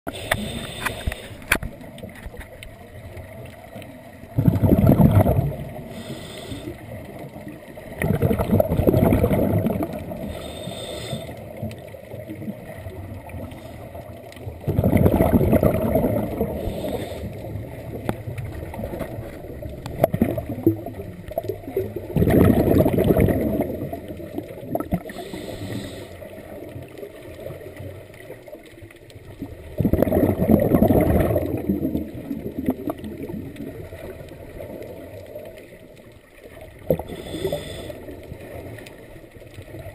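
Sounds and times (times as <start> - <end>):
regulator inhalation hiss: 0.1 - 1.4, 5.9 - 6.8, 10.2 - 11.4, 16.6 - 17.4, 25.1 - 26.2, 37.0 - 38.1
bubbly underwater exhalations: 4.2 - 13.8, 14.4 - 26.5, 29.4 - 35.4, 36.7 - 39.0.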